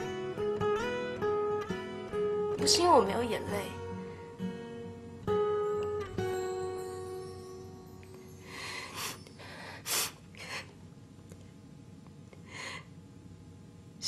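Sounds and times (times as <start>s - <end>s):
person sniffing and gasping: 8.8s - 10.7s.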